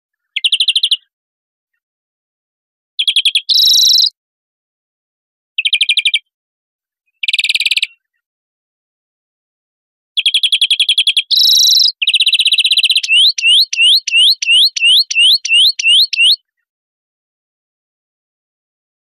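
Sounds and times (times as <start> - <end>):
finch song: 0.2 - 1.1, 3.0 - 4.1, 10.2 - 16.6.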